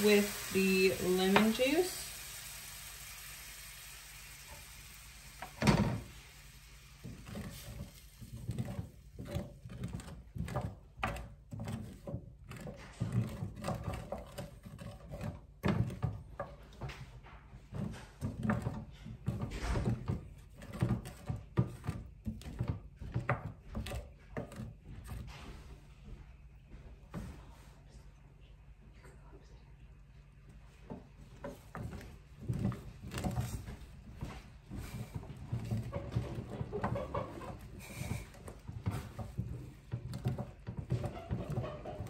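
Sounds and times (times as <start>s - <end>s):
cookware and utensils clattering: 35.5s - 42.0s.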